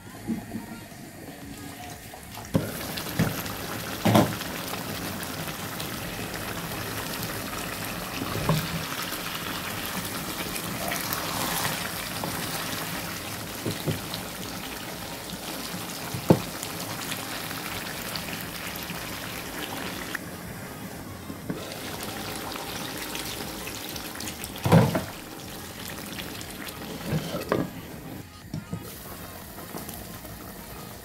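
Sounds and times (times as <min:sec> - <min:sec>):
curry hissing on stove: 0:01.1 - 0:20.2, 0:21.4 - 0:28.2.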